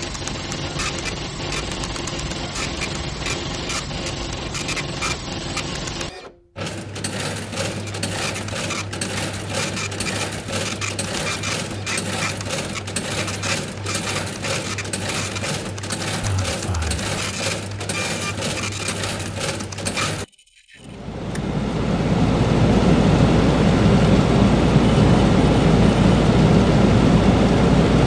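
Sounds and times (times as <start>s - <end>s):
rapid mechanical clattering: 0.0s - 21.0s
machine-room hum and clatter: 0.0s - 28.0s.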